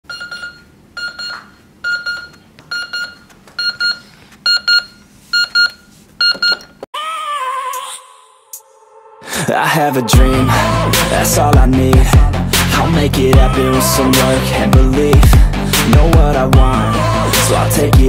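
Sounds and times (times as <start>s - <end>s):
digital alarm clock beeping: 0.1s - 6.7s.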